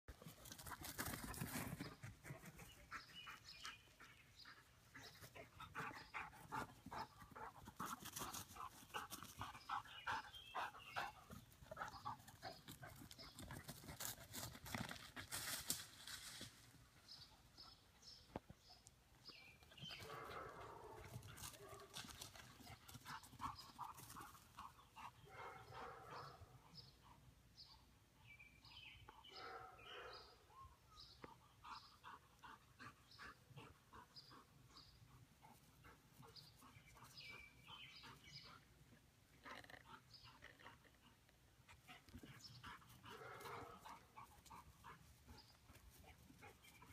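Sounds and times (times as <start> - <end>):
dog panting: 31.3 - 38.7.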